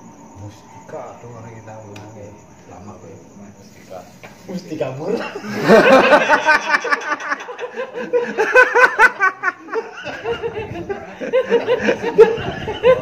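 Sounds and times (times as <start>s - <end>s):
men laughing: 5.1s - 13.0s.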